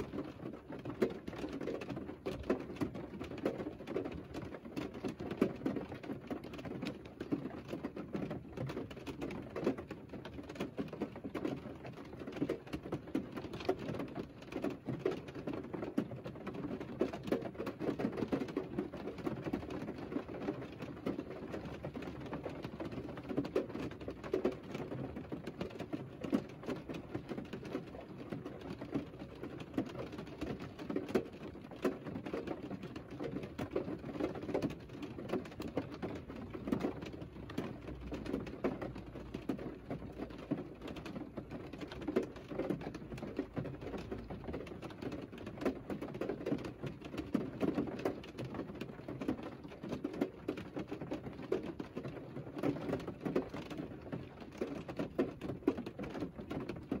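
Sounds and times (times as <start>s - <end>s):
rain on car roof and glass: 0.0s - 57.0s.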